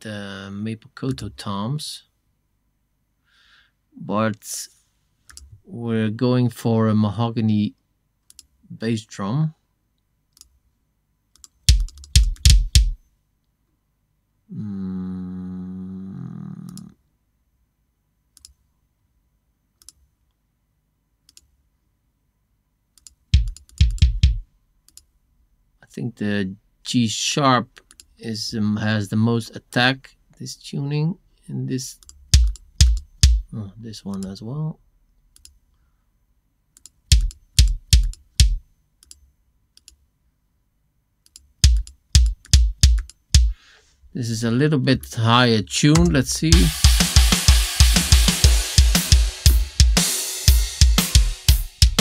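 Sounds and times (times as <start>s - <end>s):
bass drum thuds: 11.7s - 13.0s, 23.4s - 24.4s, 32.3s - 33.5s, 37.1s - 38.6s, 41.6s - 43.6s, 46.0s - 52.0s
faint clicks: 18.4s - 18.6s
faint mouse clicks: 18.4s - 18.6s, 19.8s - 20.0s, 21.3s - 21.5s.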